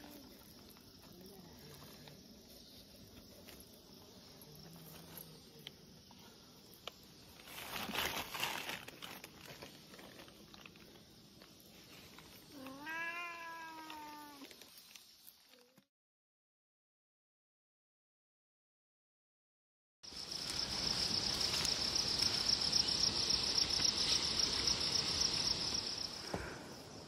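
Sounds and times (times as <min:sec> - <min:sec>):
cat meowing: 0:12.5 - 0:14.5.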